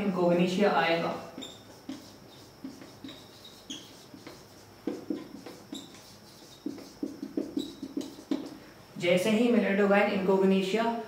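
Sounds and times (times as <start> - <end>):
marker squeaking on whiteboard: 1.0 - 8.6.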